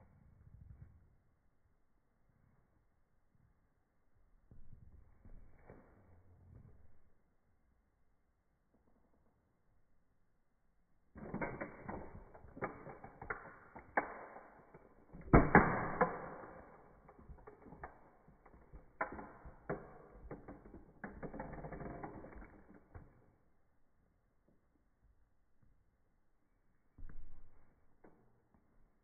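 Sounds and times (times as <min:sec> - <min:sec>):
toy car creaking and cracking: 0:11.2 - 0:23.3
plastic grinding: 0:17.0 - 0:23.2.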